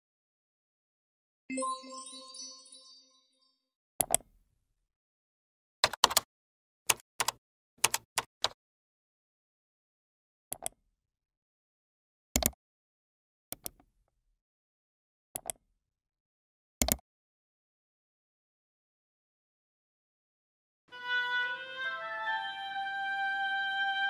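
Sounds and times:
mouse clicks: 4.0s - 4.3s, 12.4s - 12.6s, 13.5s - 13.8s, 15.4s - 15.6s, 16.8s - 17.0s
keyboard keystrokes: 5.8s - 6.3s, 6.9s - 8.6s, 12.4s - 12.6s.

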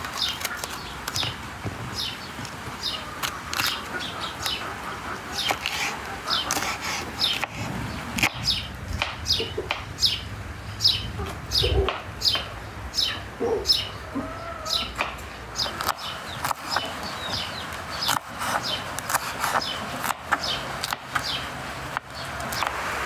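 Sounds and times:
chicken clucking: 2.8s - 7.5s, 9.3s - 9.9s, 11.2s - 20.6s
small bird chirping: 8.2s - 20.6s.

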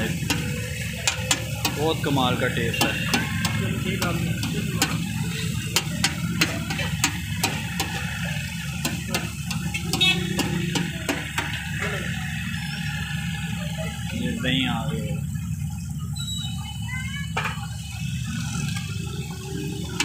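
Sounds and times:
chicken frying on griddle: 0.0s - 20.0s
metal spatula clicking on griddle: 0.2s - 1.8s, 5.8s - 8.1s.

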